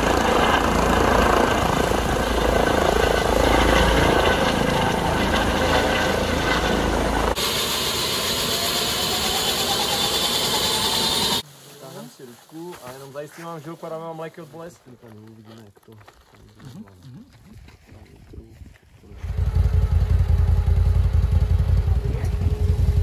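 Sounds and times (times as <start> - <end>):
helicopter rotor and turbines: 0.0 - 11.4, 19.1 - 23.0
turbine whine rising in pitch: 0.0 - 11.4.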